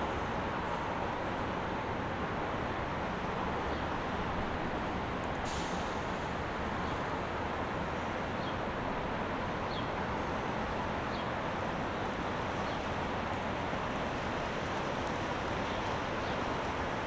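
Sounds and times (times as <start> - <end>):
boat engines rumbling: 0.0 - 17.0
water moving along hull: 0.0 - 17.0.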